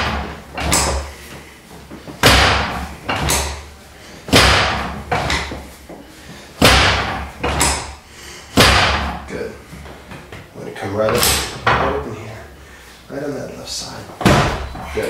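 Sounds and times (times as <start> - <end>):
sharp thuds of adjusting table: 0.0 - 1.1, 2.2 - 3.6, 4.3 - 5.6, 6.6 - 8.0.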